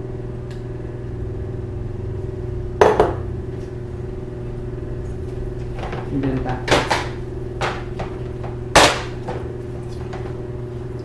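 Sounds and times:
steady low hum: 0:00.0 - 0:11.0
kitchenware knocking on skillet: 0:02.8 - 0:03.2.

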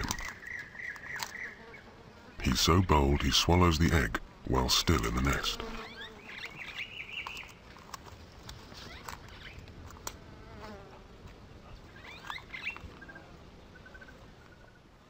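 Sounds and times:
small birds chirping: 0:00.0 - 0:09.8, 0:11.7 - 0:14.9
soft clicks and rustles: 0:07.2 - 0:10.7.

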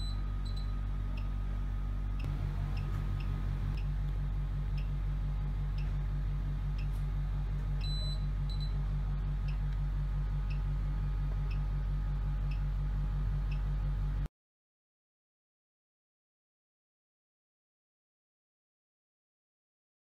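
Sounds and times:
pulsing low machine hum: 0:00.0 - 0:14.3.

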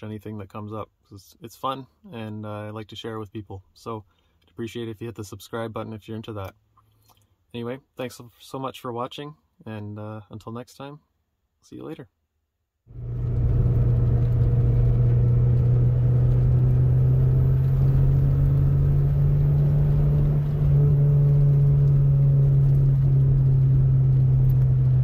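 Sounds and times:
car engine drone from inside cabin: 0:12.9 - 0:25.0
road noise: 0:12.9 - 0:25.0.

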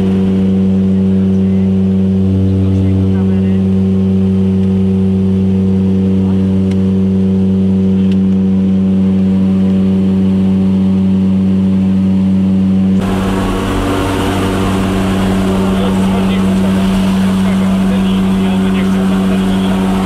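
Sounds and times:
propeller engines droning: 0:00.0 - 0:20.0
rush of air: 0:13.0 - 0:20.0.

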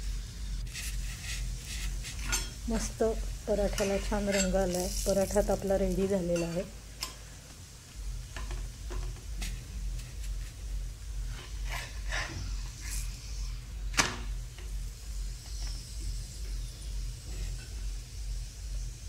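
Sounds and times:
pulsing cooktop hum: 0:00.0 - 0:19.0
steel spatula scraping a pan: 0:00.7 - 0:02.9, 0:03.6 - 0:05.6, 0:11.3 - 0:13.2.

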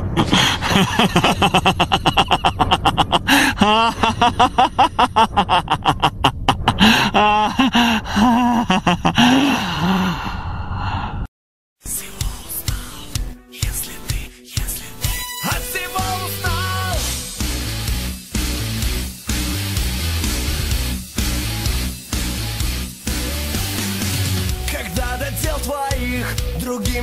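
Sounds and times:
man laughing maniacally: 0:00.0 - 0:10.3.

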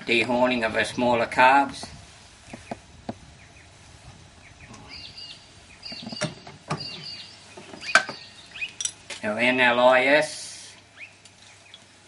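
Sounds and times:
faint bird chirps: 0:04.4 - 0:08.9.

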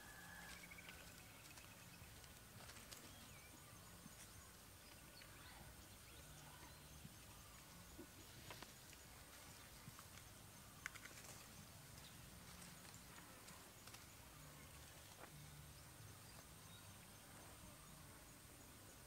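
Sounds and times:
faint clicks: 0:09.9 - 0:14.1.

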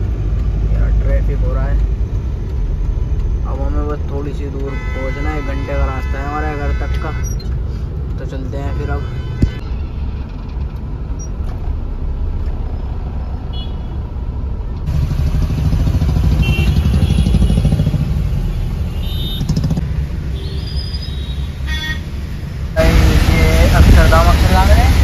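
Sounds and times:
engine and road rumble: 0:00.0 - 0:25.0.

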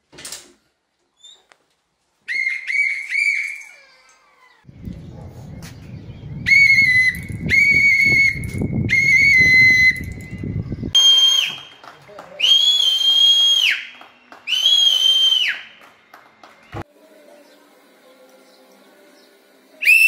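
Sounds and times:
whistle long high notes: 0:02.3 - 0:03.8, 0:06.4 - 0:10.4, 0:11.0 - 0:11.8, 0:12.4 - 0:15.7, 0:19.8 - 0:20.0
low rumbling noise: 0:04.7 - 0:11.0.

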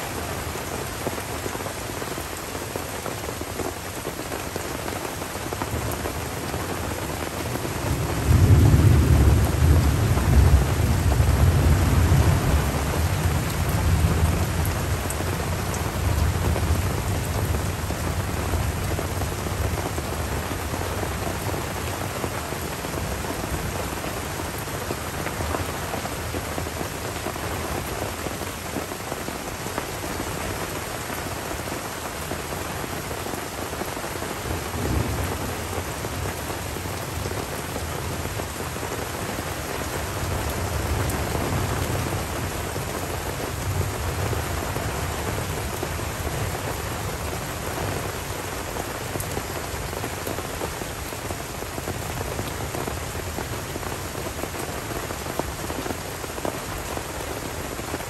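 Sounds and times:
rain on foliage: 0:00.0 - 0:58.0
distant rolling thunder: 0:07.9 - 0:19.7.

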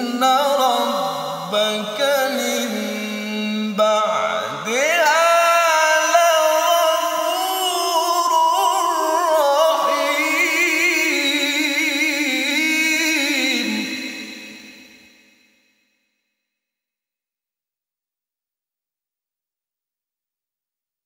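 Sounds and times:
man reciting melodically: 0:00.0 - 0:14.8.

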